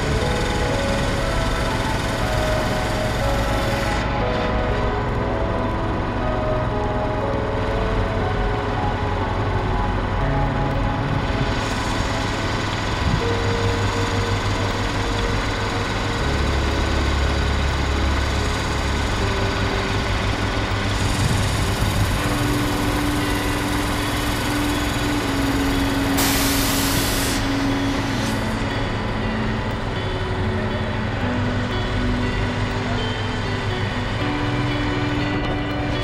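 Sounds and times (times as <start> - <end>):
truck engine running: 0.0 - 36.0
hiss: 26.2 - 28.4.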